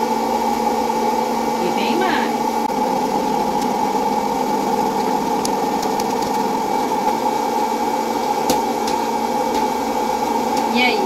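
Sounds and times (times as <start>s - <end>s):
popcorn popper fan humming: 0.0s - 11.0s
popcorn kernels popping: 3.0s - 11.0s.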